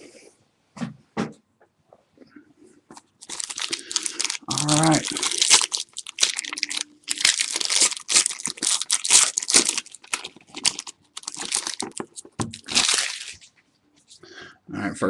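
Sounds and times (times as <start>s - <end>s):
foil wrapper crinkling and tearing: 3.0s - 13.5s.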